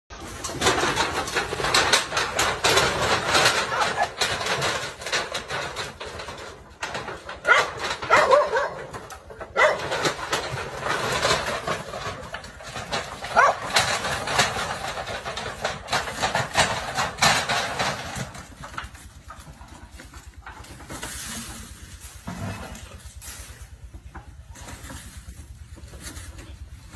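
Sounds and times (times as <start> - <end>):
dogs barking: 7.4 - 10.2, 13.2 - 13.8.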